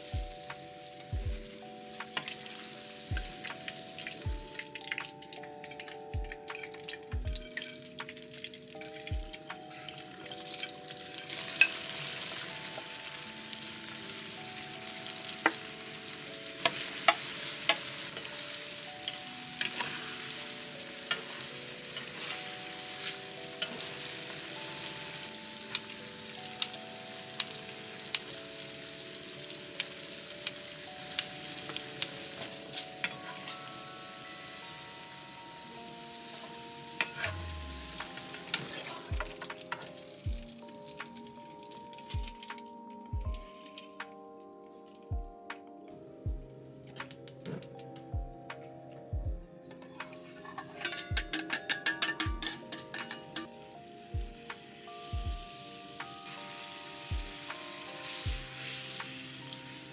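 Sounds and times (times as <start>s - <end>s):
food sizzling in hot oil: 0.0s - 42.8s, 49.7s - 59.9s
metal spatula clicking on pan: 49.7s - 53.5s.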